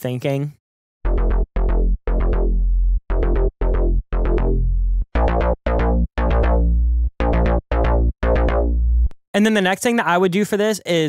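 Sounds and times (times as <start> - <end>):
growly synth bass line: 1.1 - 9.1.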